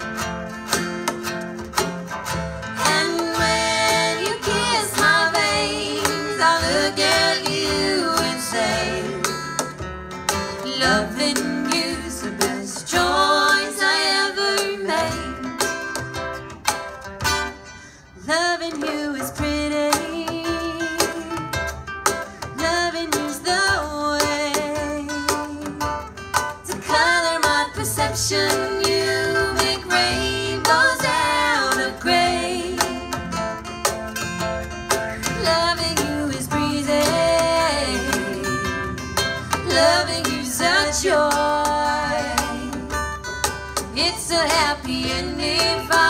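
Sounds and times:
strummed acoustic guitar: 0:00.0 - 0:46.0
woman singing with vibrato: 0:02.7 - 0:09.6, 0:10.5 - 0:15.6, 0:18.2 - 0:21.4, 0:22.6 - 0:25.9, 0:26.7 - 0:33.3, 0:35.2 - 0:43.2, 0:43.9 - 0:46.0.

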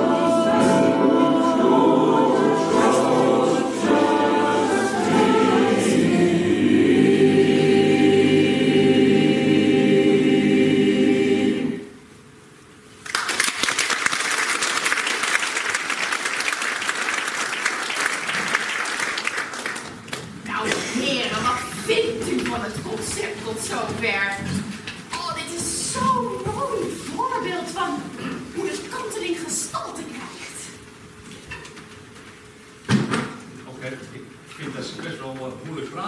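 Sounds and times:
mixed choir singing: 0:00.0 - 0:12.1
audience applauding: 0:13.0 - 0:20.9.

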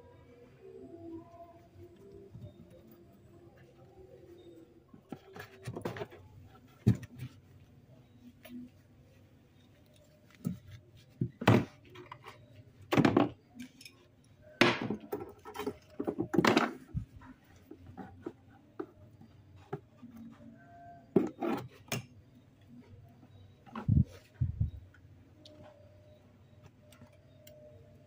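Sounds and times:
plastic items knocking and rattling: 0:12.9 - 0:13.4, 0:14.6 - 0:17.1.

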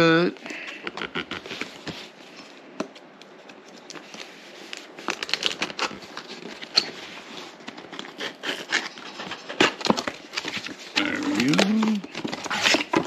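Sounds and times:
packing tape tearing off a box: 0:03.5 - 0:13.0.

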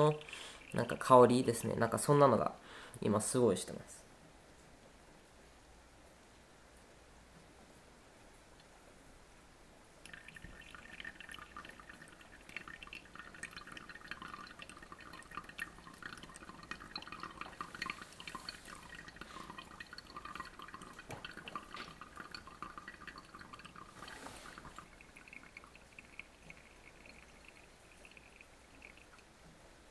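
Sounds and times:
water pouring onto coffee grounds: 0:00.0 - 0:02.2, 0:10.0 - 0:29.3
coffee dripping and trickling: 0:00.0 - 0:02.6, 0:10.0 - 0:29.9.

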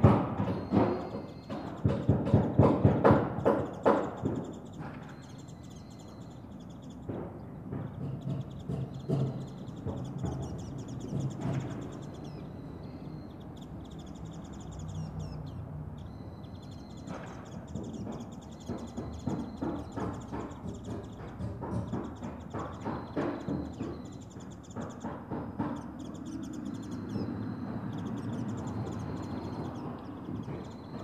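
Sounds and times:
hammers striking nails into timber: 0:00.0 - 0:12.3, 0:16.9 - 0:31.0
birds chirping: 0:00.0 - 0:31.0
steady outdoor hum: 0:00.0 - 0:31.0.

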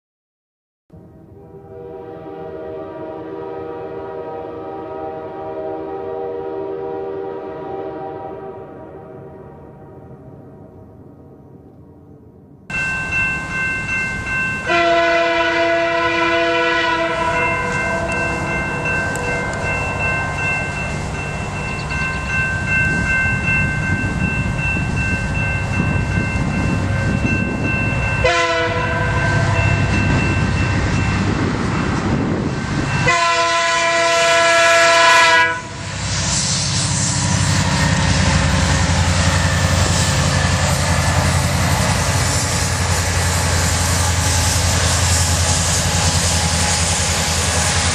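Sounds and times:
diesel locomotives rumbling past: 0:00.9 - 0:47.9
locomotive horn blasts: 0:01.3 - 0:10.1, 0:14.6 - 0:20.5, 0:28.1 - 0:30.2, 0:33.0 - 0:36.0.

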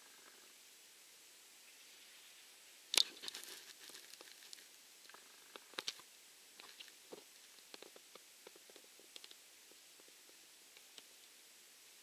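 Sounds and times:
faint clicks and crackles: 0:02.9 - 0:11.4.

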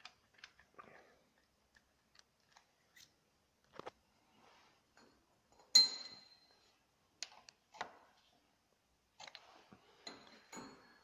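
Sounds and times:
sharp metallic clink with ring: 0:05.7 - 0:06.5.

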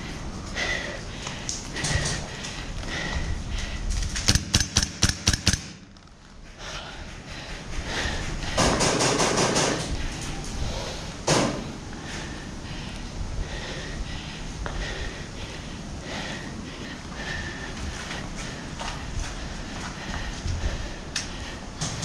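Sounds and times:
airsoft rifle shots: 0:04.3 - 0:05.9, 0:08.6 - 0:09.9.

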